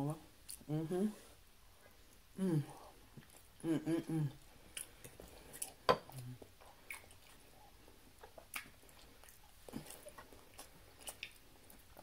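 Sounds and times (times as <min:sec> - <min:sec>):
wet chewing mouth clicks: 0:04.7 - 0:12.0.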